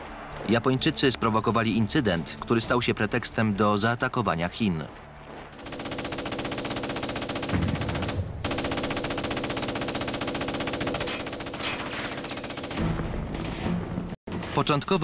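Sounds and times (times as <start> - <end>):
machine-gun fire: 5.6 - 13.0.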